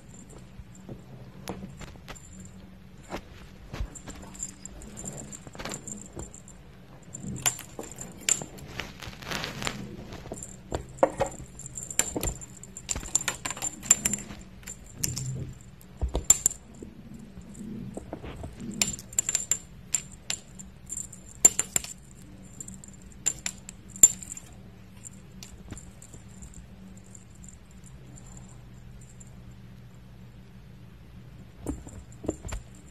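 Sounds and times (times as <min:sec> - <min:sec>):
faint low hum: 0:00.0 - 0:32.9
metallic jingling and clicking: 0:03.8 - 0:08.8, 0:10.1 - 0:29.4, 0:31.7 - 0:32.9.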